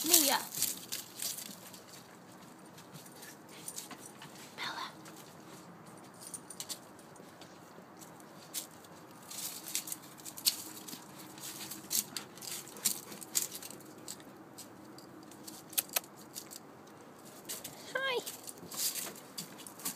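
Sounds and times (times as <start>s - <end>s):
dry leaves crackling and rustling: 0.0s - 2.1s, 8.4s - 14.2s.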